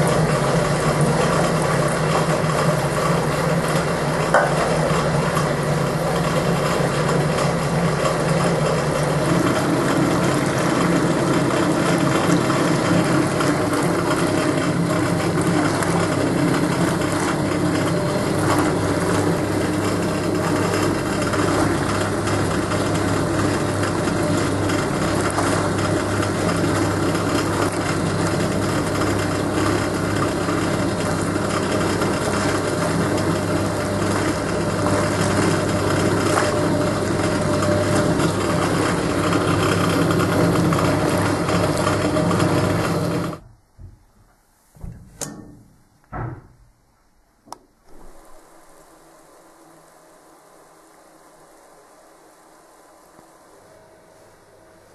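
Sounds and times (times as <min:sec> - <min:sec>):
water churning in tub: 0:00.0 - 0:43.4
washing machine motor humming: 0:00.0 - 0:44.2, 0:44.8 - 0:54.9.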